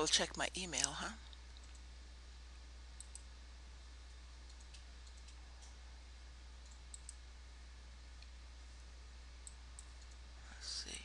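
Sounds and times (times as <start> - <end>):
low electrical hum: 0.0 - 11.0
computer mouse clicks: 3.0 - 3.3, 4.4 - 5.8, 6.6 - 7.2.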